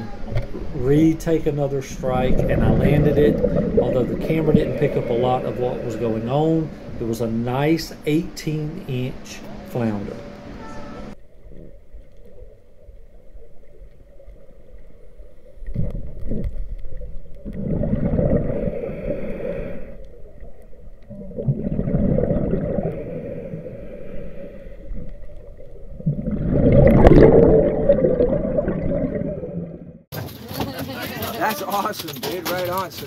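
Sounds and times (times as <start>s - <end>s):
underwater exhale bubbles gurgling: 1.8s - 7.8s, 15.6s - 30.0s
quiet underwater inhales: 3.3s - 7.0s, 18.2s - 20.5s, 22.4s - 25.8s.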